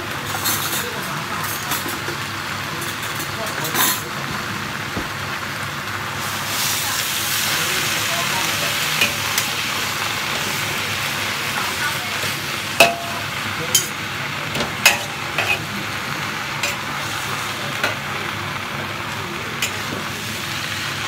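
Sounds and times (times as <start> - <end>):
vegetables sizzling in a wok: 0.0 - 21.0
metal spatula scraping a wok: 14.9 - 15.7.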